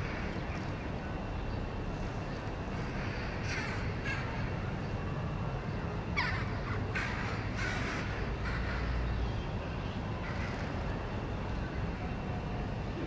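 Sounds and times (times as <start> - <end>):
harsh bird calls: 0.0 - 5.0, 6.1 - 10.8.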